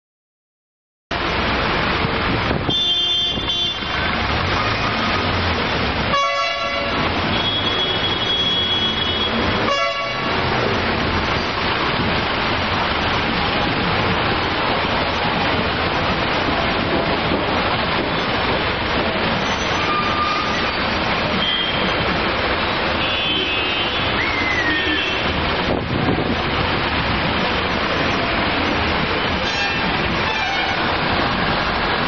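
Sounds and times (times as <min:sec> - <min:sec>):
road traffic noise: 0:01.1 - 0:32.0
vehicle horn blasts: 0:02.7 - 0:03.9, 0:06.1 - 0:10.3, 0:23.0 - 0:24.1.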